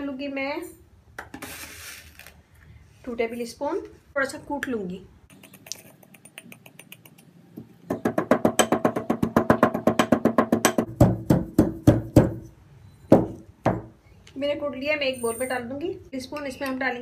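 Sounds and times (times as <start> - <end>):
brass pestle pounding in mortar: 7.9 - 12.4.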